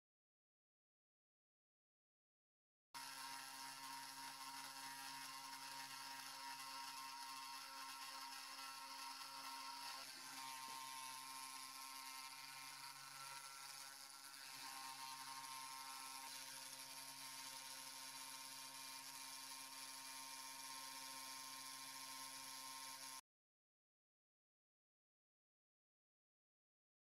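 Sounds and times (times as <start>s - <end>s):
router spindle motor whirring: 3.0s - 23.2s.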